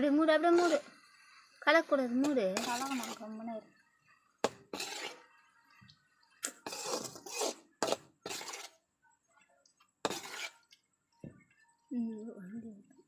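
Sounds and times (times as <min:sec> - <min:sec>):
spatula scraping a pan: 0:00.2 - 0:05.8, 0:06.4 - 0:08.9, 0:10.0 - 0:10.8.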